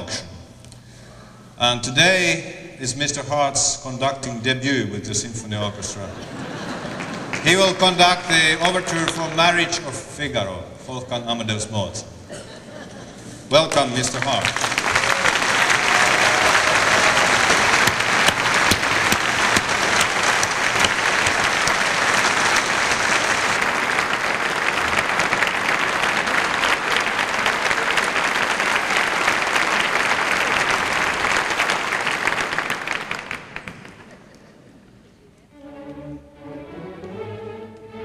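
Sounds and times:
audience applauding: 0:06.5 - 0:07.9, 0:13.7 - 0:34.5.

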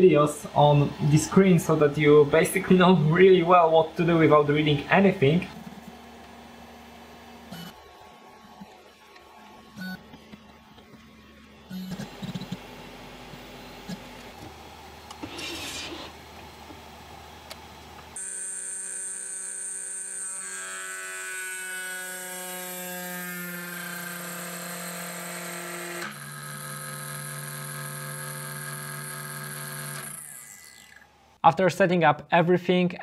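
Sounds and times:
milling machine motors whining: 0:00.7 - 0:16.4, 0:26.0 - 0:31.1.

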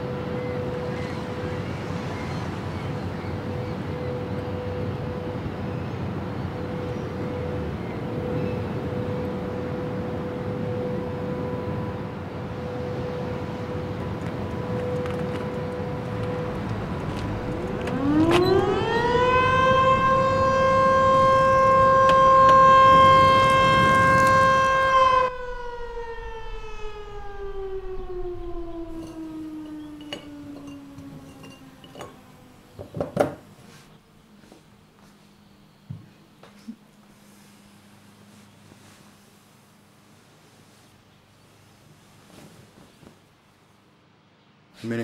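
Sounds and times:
siren wailing: 0:06.5 - 0:32.9.

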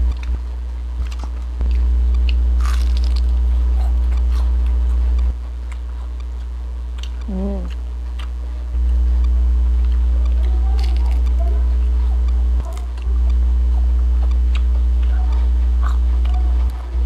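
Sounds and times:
crunchy chewing and biting: 0:00.0 - 0:17.0
loud steady low hum: 0:00.0 - 0:17.0
person humming: 0:07.2 - 0:07.8.

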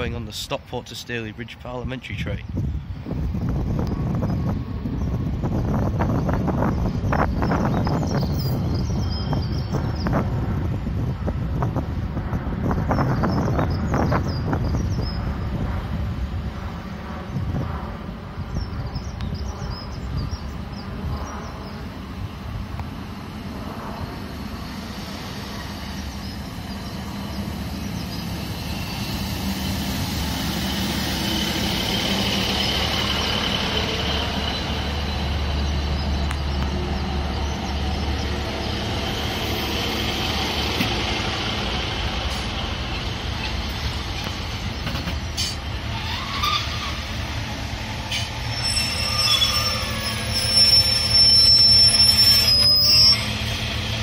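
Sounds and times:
diesel train engine droning: 0:00.0 - 0:54.0
train wheels rumbling: 0:00.0 - 0:54.0
train brakes squealing: 0:24.6 - 0:36.5, 0:45.3 - 0:54.0.

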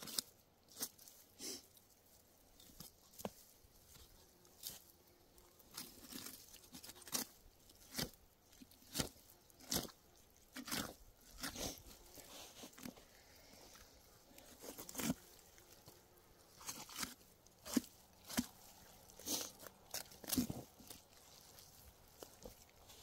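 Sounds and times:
knife cutting and tearing hide: 0:05.6 - 0:23.0.

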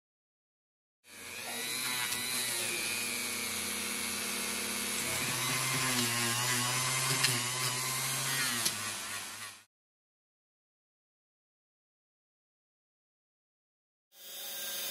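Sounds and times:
rotary tool grinding metal: 0:01.1 - 0:09.7.

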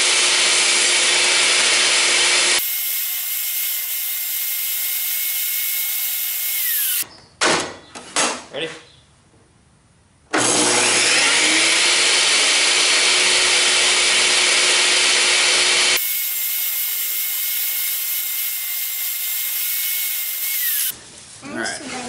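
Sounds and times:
saw cutting wood: 0:00.0 - 0:07.0, 0:10.4 - 0:21.0
table saw whining: 0:00.0 - 0:07.0, 0:10.4 - 0:20.9.

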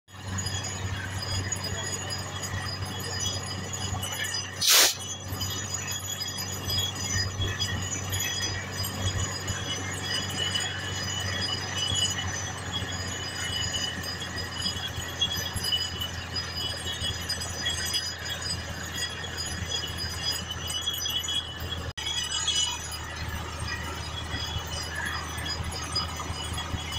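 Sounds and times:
drill string ringing tones: 0:00.1 - 0:26.9
drilling rig engine hum: 0:00.1 - 0:26.9.

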